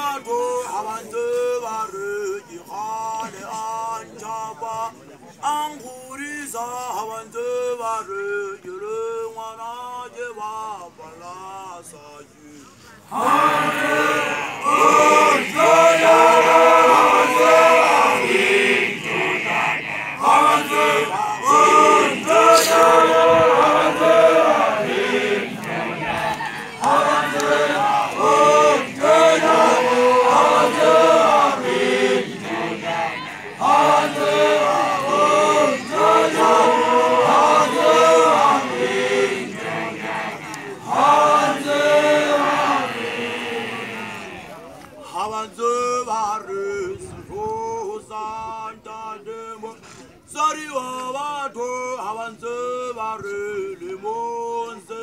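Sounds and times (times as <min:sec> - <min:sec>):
men chanting in unison: 0:13.1 - 0:47.0.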